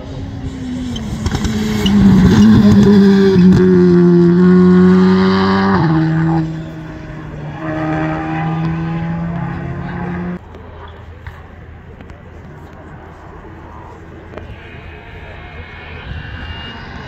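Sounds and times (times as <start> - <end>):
rally car engine at high revs: 0.0 - 10.4.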